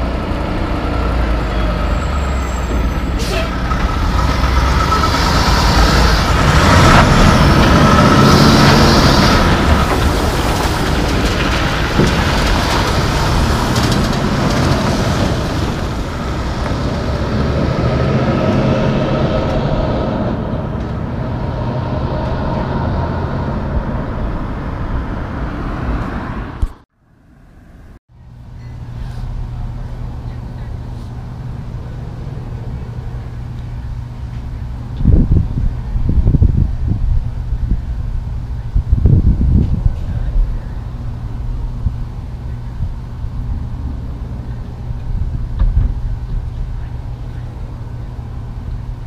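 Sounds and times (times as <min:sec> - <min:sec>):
truck diesel engine: 0:00.0 - 0:39.0.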